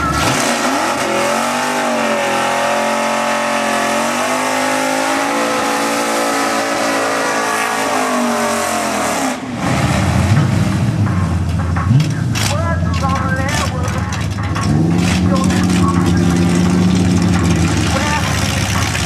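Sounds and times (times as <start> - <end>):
car engine revving: 0.0 - 19.0
tyres spinning: 11.9 - 19.0.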